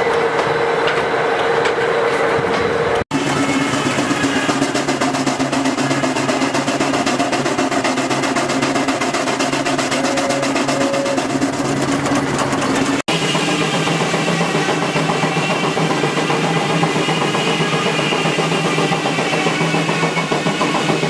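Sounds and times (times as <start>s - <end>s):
steam engine exhaust beating: 0.0s - 21.0s.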